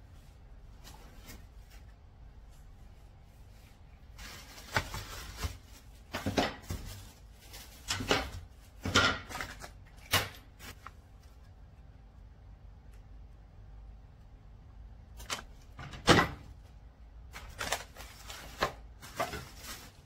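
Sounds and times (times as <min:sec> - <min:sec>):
plastic wrap rustling: 0:00.0 - 0:11.4, 0:16.4 - 0:20.0.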